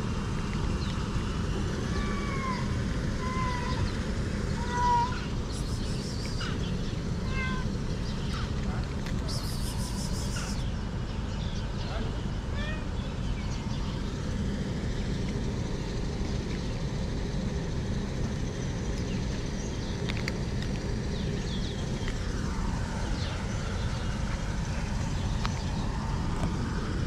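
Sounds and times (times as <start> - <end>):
steady low outdoor rumble: 0.0 - 27.0
chirps: 4.6 - 8.6, 9.2 - 12.2.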